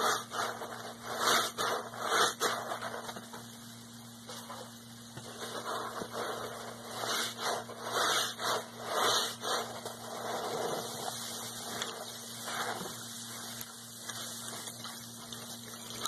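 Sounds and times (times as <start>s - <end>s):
wet sponge squelching: 5.3s - 13.6s.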